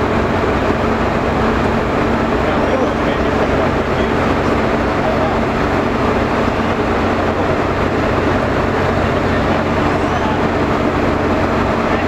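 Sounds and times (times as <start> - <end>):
ship machinery drone: 0.0 - 12.0.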